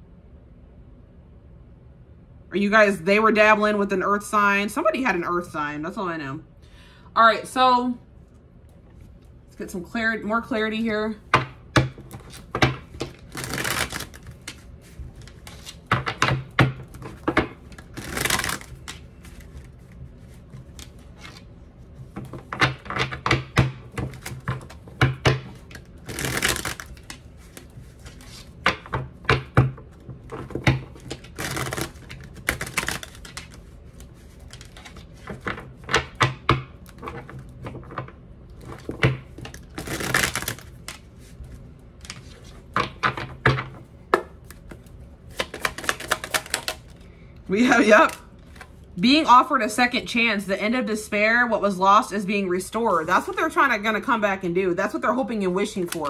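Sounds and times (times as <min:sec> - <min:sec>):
cards clicking and tapping: 0:11.3 - 0:21.4, 0:22.0 - 0:41.1, 0:42.0 - 0:47.0
cards riffling: 0:12.0 - 0:29.0, 0:30.2 - 0:36.0, 0:38.6 - 0:42.7, 0:44.4 - 0:47.1.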